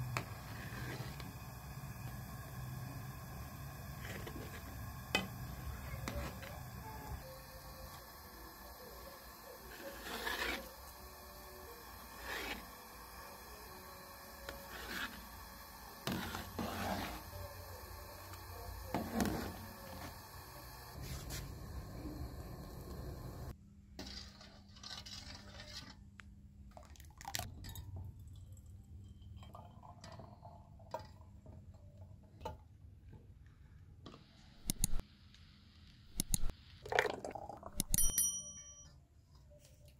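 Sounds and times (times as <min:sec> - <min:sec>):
ringing clink: 0:37.8 - 0:39.0.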